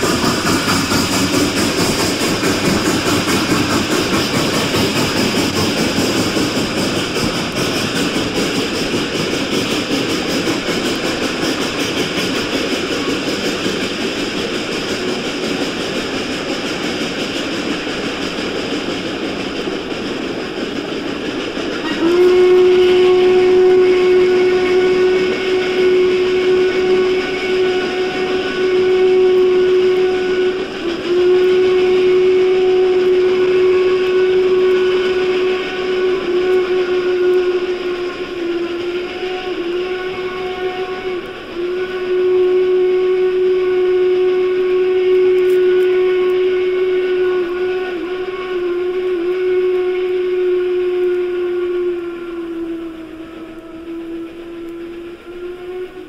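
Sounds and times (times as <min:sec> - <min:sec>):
steam locomotive whistle: 0:00.0 - 0:56.0
train rushing noise: 0:00.0 - 0:56.0.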